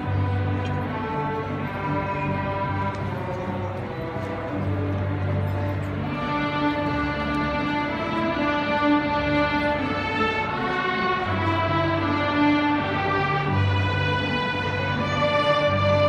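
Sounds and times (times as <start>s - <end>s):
string orchestra playing: 0.0s - 16.0s.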